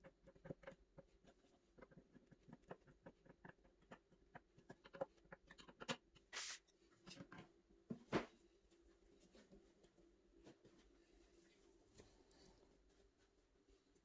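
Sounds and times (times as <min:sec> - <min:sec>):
clicks and taps of handling parts: 0:00.0 - 0:06.3.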